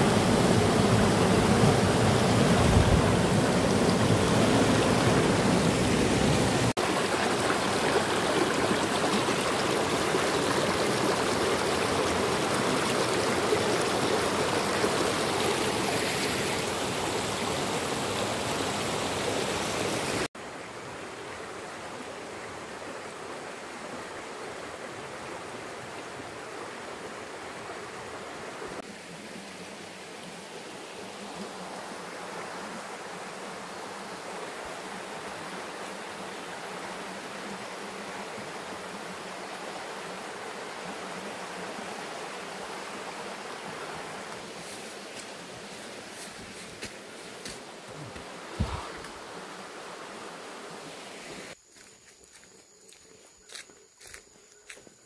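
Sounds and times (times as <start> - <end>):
stream splashing over stones: 0.0 - 20.3.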